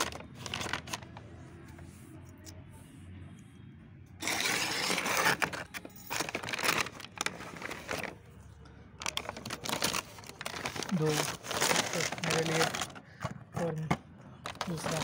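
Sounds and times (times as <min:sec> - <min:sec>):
paper bag ripping and crinkling: 0:00.0 - 0:01.2, 0:04.2 - 0:08.2, 0:09.0 - 0:13.1, 0:14.5 - 0:15.0.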